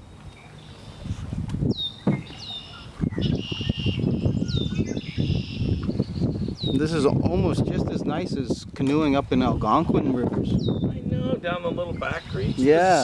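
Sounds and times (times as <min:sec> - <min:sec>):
buzzy bird trills: 0:00.3 - 0:06.8
marsh bird whistled calls: 0:00.3 - 0:07.0, 0:10.5 - 0:11.0.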